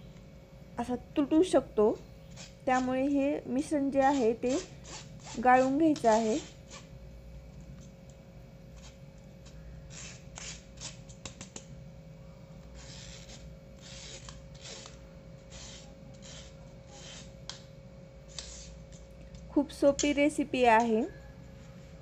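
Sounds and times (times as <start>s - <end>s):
spoon scraping metal mesh sieve: 4.0s - 6.9s.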